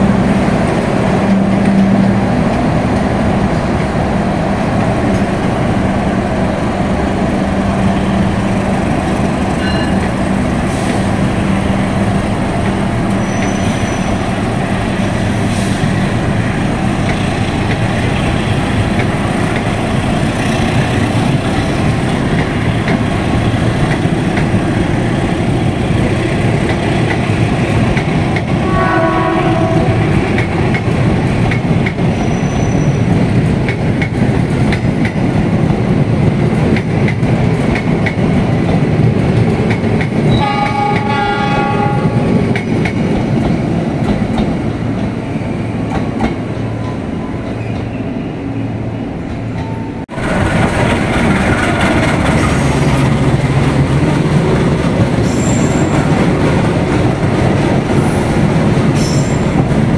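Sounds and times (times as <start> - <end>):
train wheels clicking over rail joints: 12.0 - 28.6, 29.9 - 41.2, 41.8 - 45.2, 49.2 - 59.9
train horn blasts: 28.6 - 30.1, 40.3 - 42.4.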